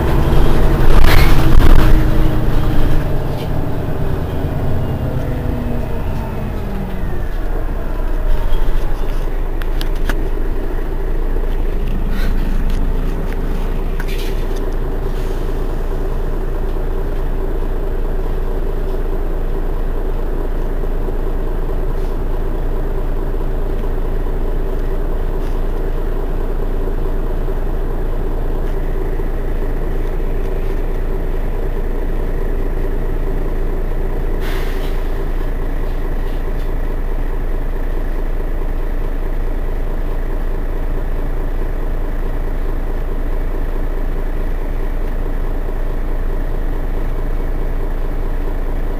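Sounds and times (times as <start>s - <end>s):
bus engine idling: 0.0s - 48.9s
short hiss: 34.4s - 35.2s.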